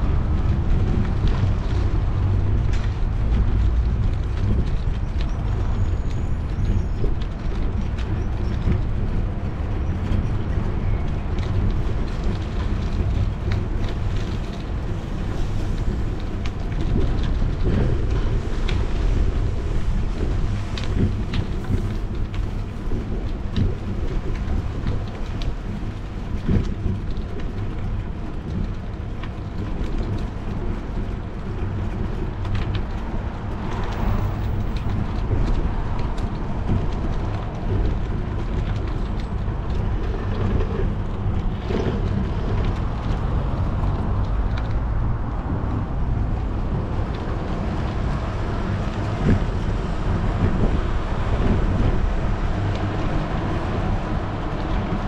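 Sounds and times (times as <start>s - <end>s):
tyres rumbling on pavement: 0.0s - 55.0s
wind rushing over microphone: 0.0s - 55.0s.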